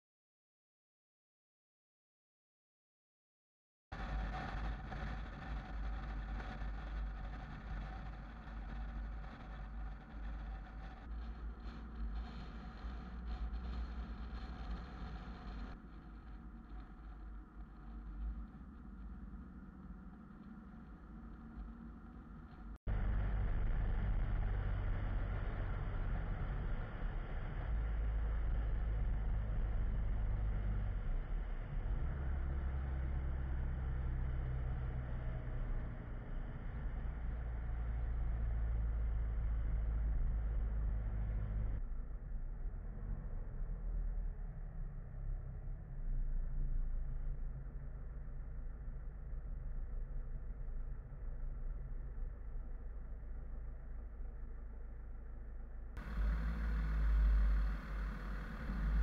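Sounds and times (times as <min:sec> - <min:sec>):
unsteady low rumble: 0:03.9 - 0:59.0
vehicle driving on paved road: 0:04.0 - 0:59.0
car road and engine noise: 0:27.7 - 0:42.0, 0:54.2 - 0:59.0.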